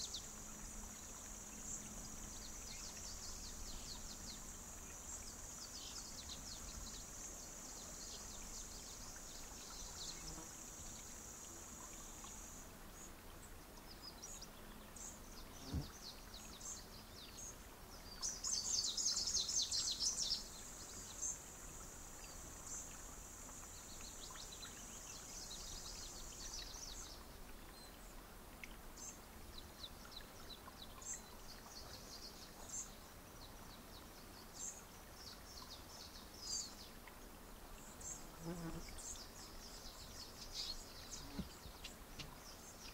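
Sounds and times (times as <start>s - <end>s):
small birds chirping: 37.8s - 42.9s.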